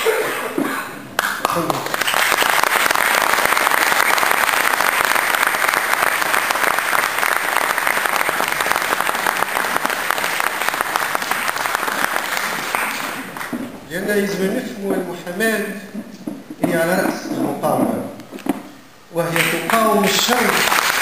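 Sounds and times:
crowd applauding: 0:01.2 - 0:13.6, 0:19.3 - 0:21.0.

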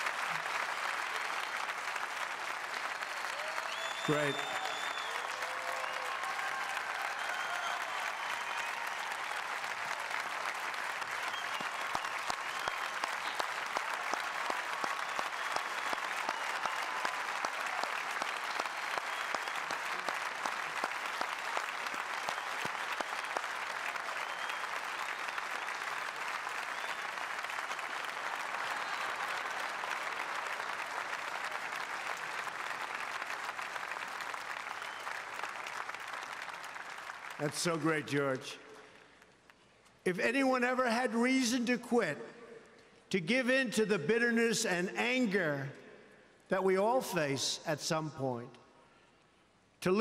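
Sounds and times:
calls and cheers: 0:00.0 - 0:38.4
audience applauding: 0:00.0 - 0:39.7.

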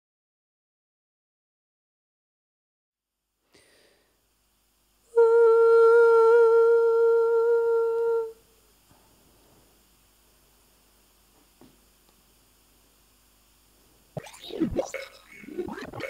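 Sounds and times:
person humming a high note: 0:05.1 - 0:08.5.

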